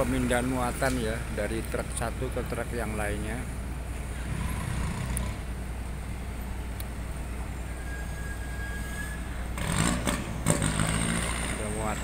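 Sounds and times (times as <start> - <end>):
truck engines idling: 0.0 - 12.0.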